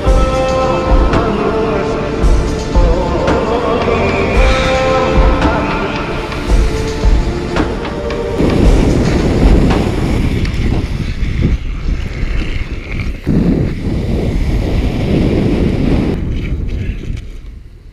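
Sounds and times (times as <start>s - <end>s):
wind buffeting microphone: 0.0s - 17.9s
wheels rolling on wet asphalt: 7.7s - 17.6s.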